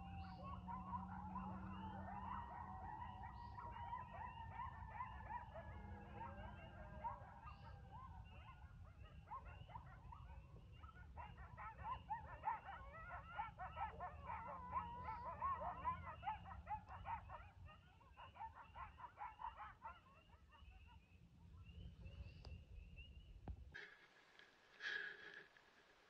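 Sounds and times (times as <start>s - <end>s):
coyotes yipping and howling: 0.0s - 23.3s.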